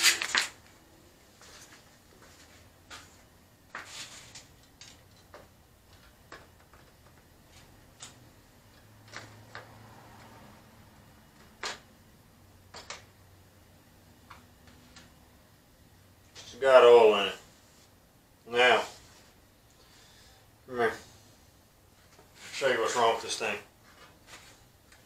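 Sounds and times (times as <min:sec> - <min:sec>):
light clicks and knocks of handling parts: 0:01.7 - 0:10.4.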